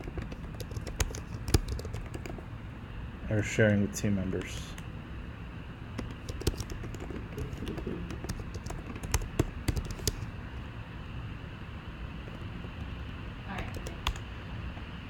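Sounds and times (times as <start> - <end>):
keyboard key clicks: 0.0 - 2.4, 6.0 - 10.3.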